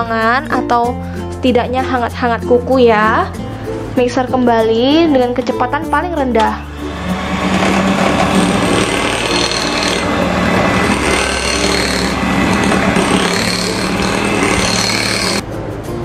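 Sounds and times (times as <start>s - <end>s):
electric hand mixer running: 6.7s - 15.4s.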